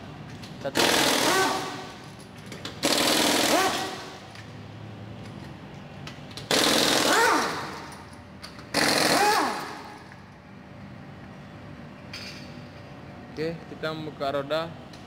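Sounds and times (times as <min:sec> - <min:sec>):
impact wrench hammering: 0:00.8 - 0:02.0, 0:02.6 - 0:04.2, 0:06.5 - 0:08.0, 0:08.6 - 0:10.1.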